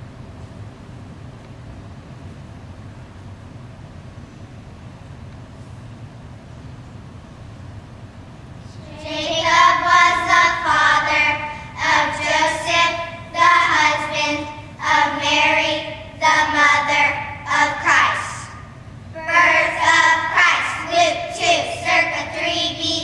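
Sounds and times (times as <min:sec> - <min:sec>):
children singing: 0:08.9 - 0:18.4, 0:19.2 - 0:23.0.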